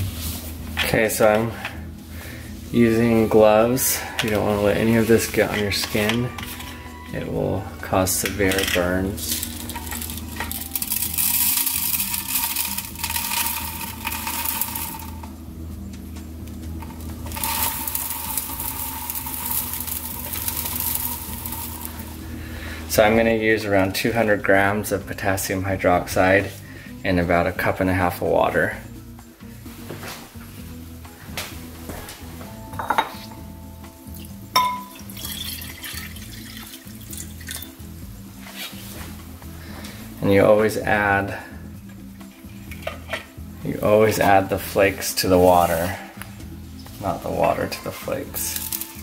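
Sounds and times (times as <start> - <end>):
flakes pouring into plastic bowl: 8.4 - 15.3, 17.2 - 22.3, 48.0 - 49.0
glassware clinking on stone: 32.7 - 33.4, 34.5 - 36.6
water splashing into glass bowl: 34.6 - 37.7.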